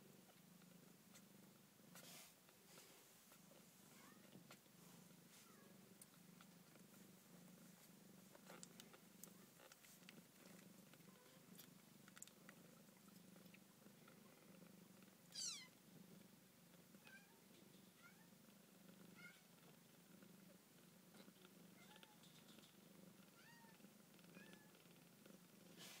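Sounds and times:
kittens purring: 0.0s - 26.0s
tiny kitten squeaks: 15.3s - 15.7s.

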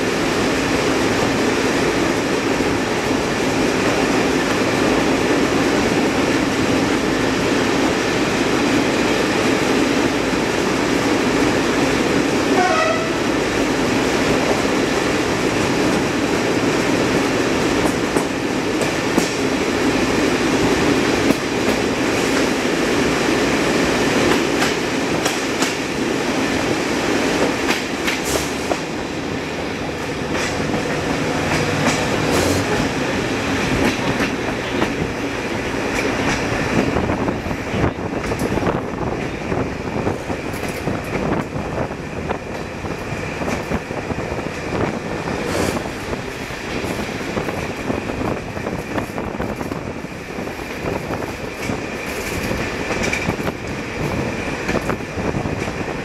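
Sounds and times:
railcar engine and wheel rumble: 0.0s - 56.0s
wheels clicking over rails: 13.0s - 37.0s, 40.0s - 56.0s.

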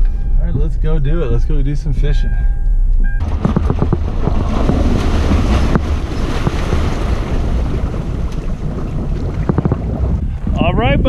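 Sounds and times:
low rumble: 0.0s - 11.0s
knocks: 3.2s - 7.4s, 9.2s - 10.0s
water churning and splashing: 3.2s - 10.5s
wind buffeting microphone: 3.2s - 11.0s.

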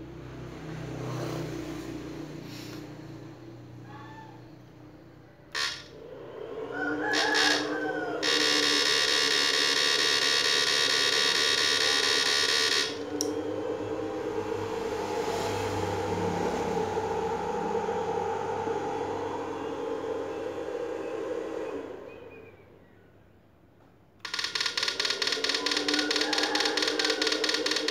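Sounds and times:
steady hum: 4.8s - 23.5s
inverter high-pitched buzz: 5.5s - 22.8s, 24.2s - 27.9s.

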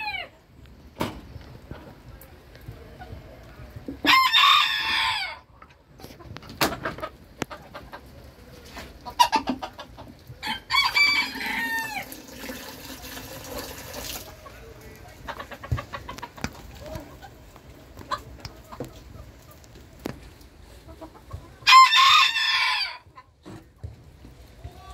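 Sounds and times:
hens clucking: 0.0s - 24.9s
rooster crowing: 4.1s - 5.4s, 10.4s - 12.3s, 21.6s - 23.1s.

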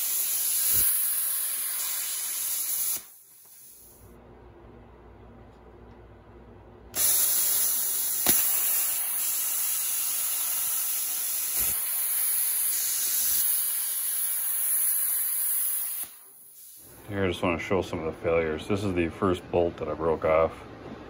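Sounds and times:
plasma cutter hissing: 0.0s - 4.0s, 7.0s - 17.0s
faint low hum: 4.0s - 7.0s.

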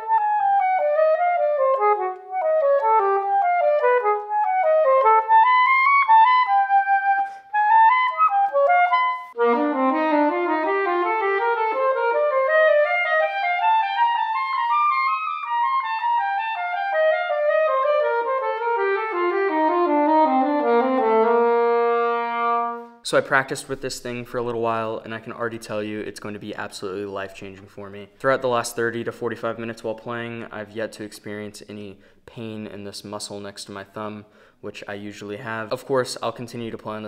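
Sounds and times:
soprano saxophone scales: 0.0s - 23.0s.

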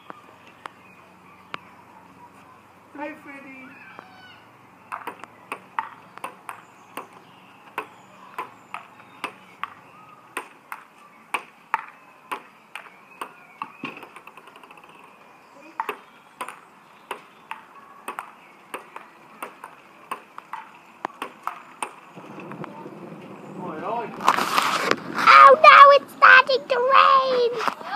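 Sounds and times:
table tennis ball hitting paddles: 4.9s - 14.8s, 15.8s - 22.0s.

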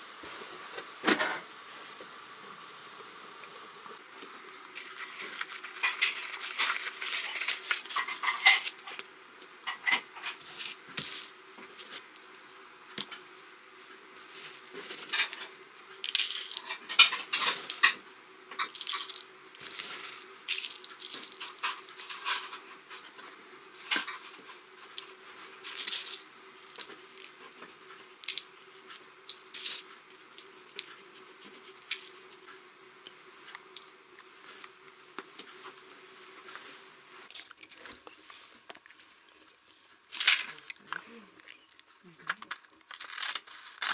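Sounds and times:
faint hum: 0.0s - 43.9s
matchbox clicks and rustles: 16.0s - 16.8s, 18.7s - 22.5s, 25.7s - 28.6s, 29.3s - 32.4s, 42.4s - 43.9s.

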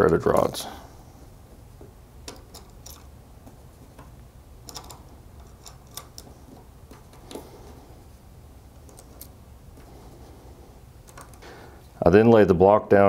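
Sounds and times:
metal washers and nuts clicking: 0.0s - 0.7s, 2.2s - 7.8s, 8.8s - 9.9s, 11.0s - 11.4s.

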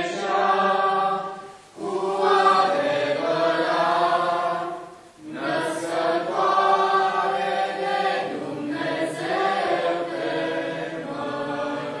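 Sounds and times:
choir singing a hymn: 0.0s - 12.0s.

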